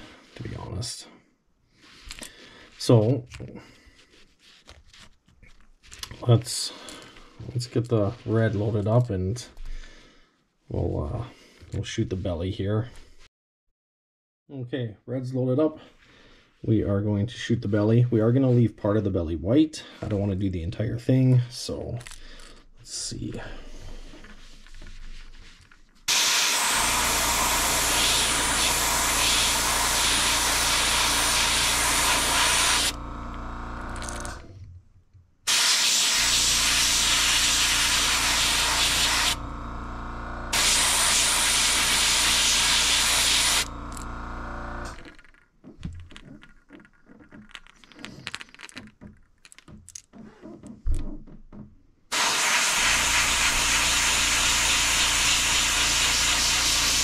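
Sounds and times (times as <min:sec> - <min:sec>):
airbrush hissing: 0:26.1 - 0:33.0, 0:35.5 - 0:39.4, 0:40.5 - 0:44.0, 0:52.1 - 0:57.0.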